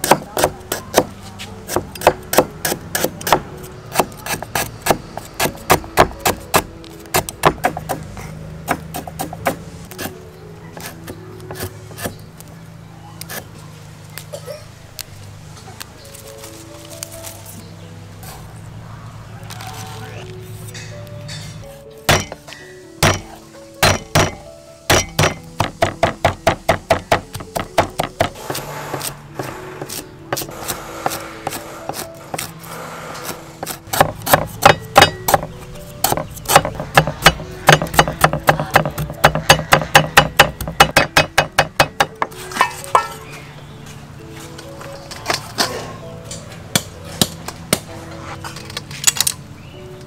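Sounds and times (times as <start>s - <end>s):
cleaver chopping on wooden block: 0.0s - 10.2s, 22.1s - 32.5s, 33.2s - 42.4s
background music: 0.0s - 50.0s.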